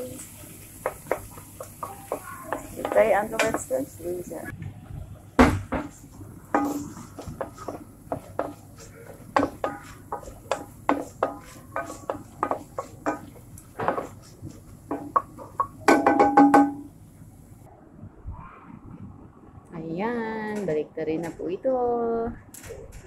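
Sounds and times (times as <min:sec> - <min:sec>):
wooden spoon scraping a pot: 0:00.8 - 0:03.8, 0:05.9 - 0:15.7.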